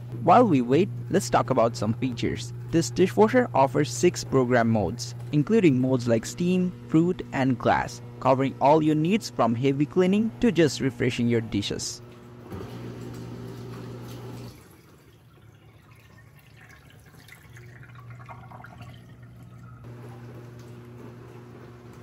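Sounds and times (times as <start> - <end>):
dishwasher motor hum: 0.0 - 22.0
dripping trickling water: 13.0 - 19.9.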